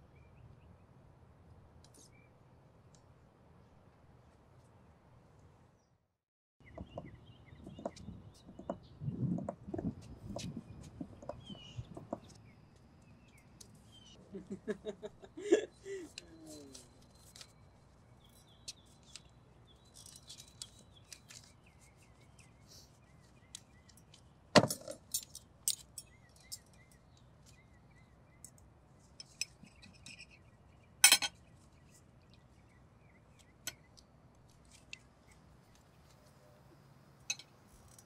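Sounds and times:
faint bird chirps: 0:06.6 - 0:24.3, 0:26.0 - 0:34.1
cutlery clinking on tableware: 0:31.0 - 0:31.4, 0:37.3 - 0:37.5.

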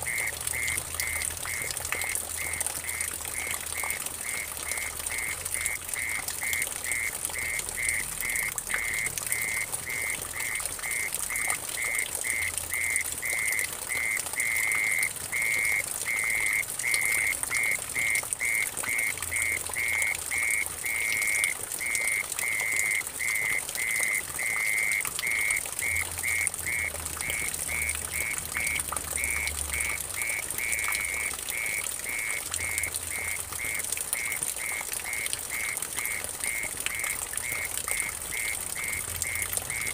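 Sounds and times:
water trickling into puddle: 0:00.0 - 0:39.9.

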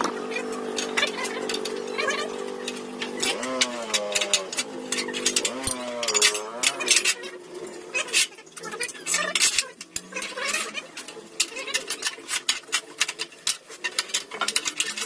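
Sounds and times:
metallic clicks of steel bending: 0:00.3 - 0:07.3.

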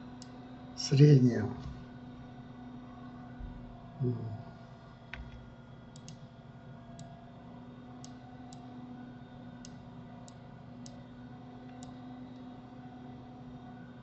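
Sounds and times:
faint steady hum: 0:00.0 - 0:14.0
computer mouse clicking: 0:05.1 - 0:06.2, 0:08.0 - 0:08.7, 0:09.6 - 0:11.0, 0:11.6 - 0:12.5.

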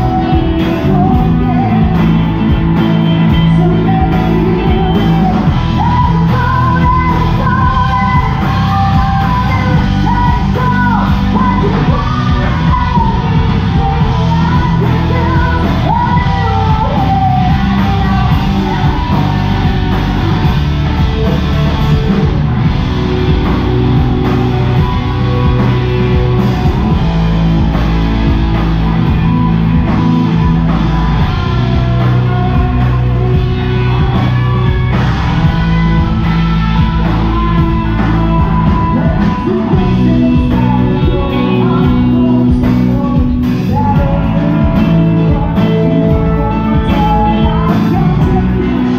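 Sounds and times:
woman singing into a microphone: 0:00.0 - 0:20.4, 0:30.3 - 0:34.8, 0:35.4 - 0:48.9
drum kit: 0:00.0 - 0:48.9
electric guitars: 0:00.0 - 0:48.9
live rock band playing: 0:00.0 - 0:48.9.

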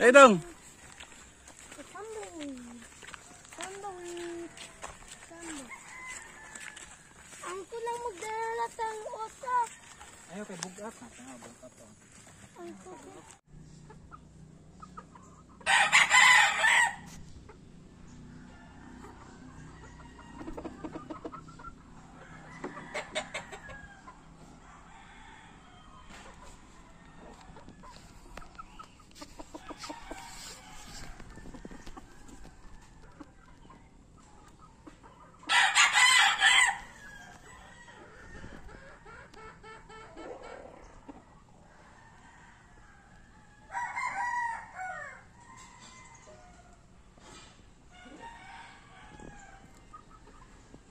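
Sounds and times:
rooster crowing: 0:04.4 - 0:07.5, 0:15.6 - 0:17.2, 0:22.2 - 0:27.5, 0:29.6 - 0:32.3, 0:35.5 - 0:38.7, 0:41.8 - 0:46.5, 0:48.0 - 0:49.7.

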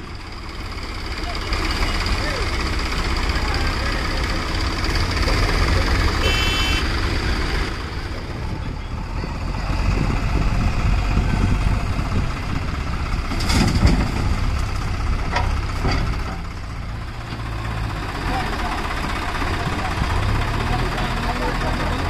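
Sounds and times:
diesel engines running: 0:00.0 - 0:22.0
short high beep: 0:06.2 - 0:06.9.

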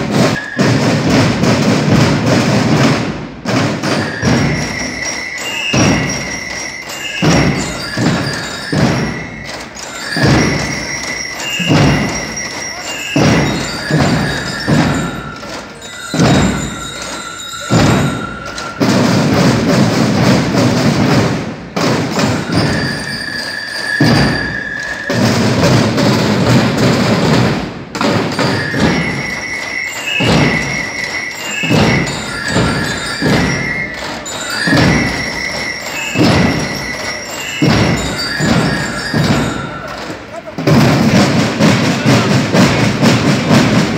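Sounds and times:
snare drum rolls: 0:00.0 - 0:43.9
high ringing tones: 0:04.0 - 0:19.0, 0:22.2 - 0:25.2, 0:28.3 - 0:40.0.

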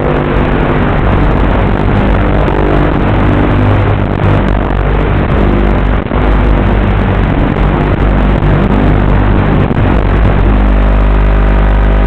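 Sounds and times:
electric motor and propeller: 0:00.0 - 0:12.0
rushing wind noise: 0:00.0 - 0:12.0.

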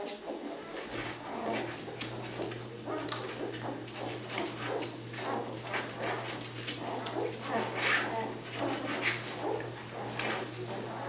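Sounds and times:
puppies squeaking and grunting: 0:00.0 - 0:11.0
steady low hum: 0:00.0 - 0:11.0.

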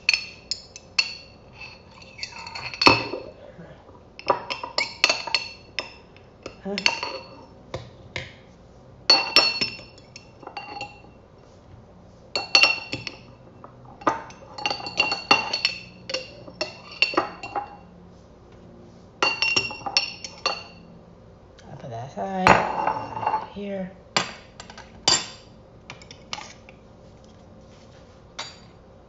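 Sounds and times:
dishes clinking together: 0:00.0 - 0:03.4, 0:09.1 - 0:11.0, 0:12.4 - 0:17.8, 0:19.2 - 0:20.8, 0:22.5 - 0:23.5.

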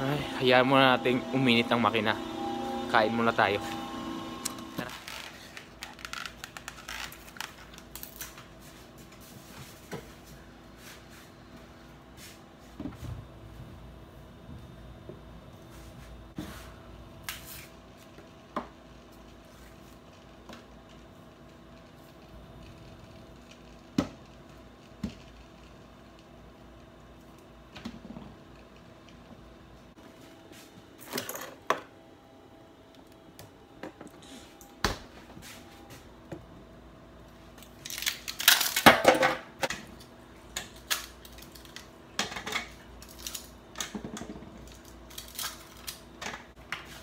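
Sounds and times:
steady hum: 0:00.0 - 0:06.8
food packaging clicks and rustles: 0:04.8 - 0:08.6, 0:40.0 - 0:47.0.

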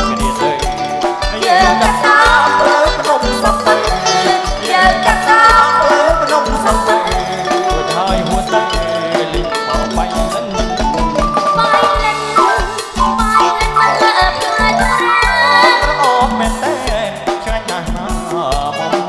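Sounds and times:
man and woman singing duet: 0:00.0 - 0:10.8, 0:11.4 - 0:19.0
bass guitar: 0:00.0 - 0:19.0
electric keyboard: 0:00.0 - 0:19.0
steady drum beat: 0:00.0 - 0:19.0.

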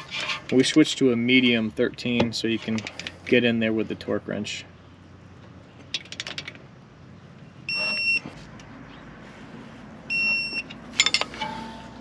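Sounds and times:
torque wrench beeping: 0:07.7 - 0:08.2
metal tools clattering: 0:10.6 - 0:12.0.

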